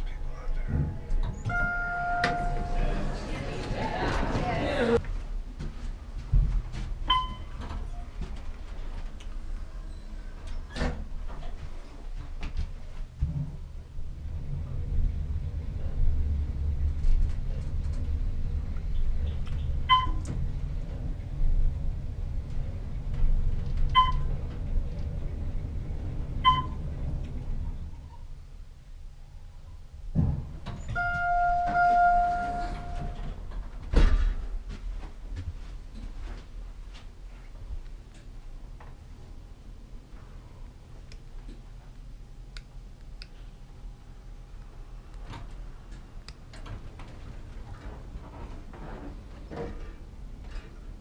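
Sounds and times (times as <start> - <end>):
elevator car low rumble: 0.0 - 36.6, 43.6 - 51.0
short high beeps: 1.5 - 2.8, 31.0 - 33.2.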